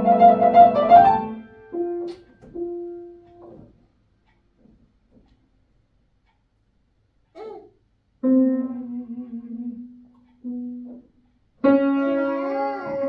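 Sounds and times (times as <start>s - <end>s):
keyboard notes: 11.6s - 13.0s.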